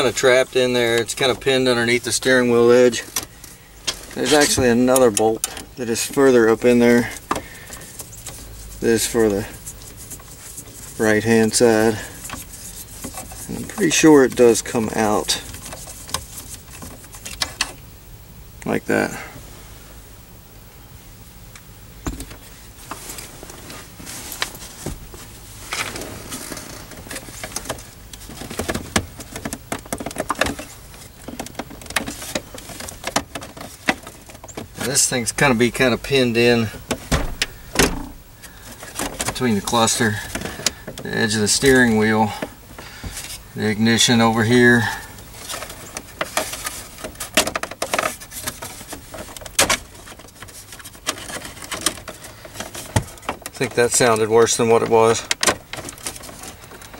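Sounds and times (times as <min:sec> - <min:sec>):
plastic clicking creaking and cracking: 0:25.8 - 0:35.0.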